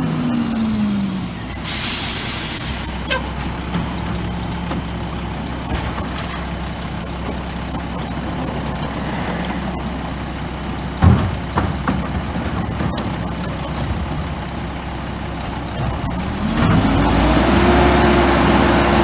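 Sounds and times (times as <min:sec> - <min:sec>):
diesel truck engine idling: 0:00.1 - 0:11.6
high-pitched whine: 0:00.3 - 0:03.7, 0:06.9 - 0:16.4.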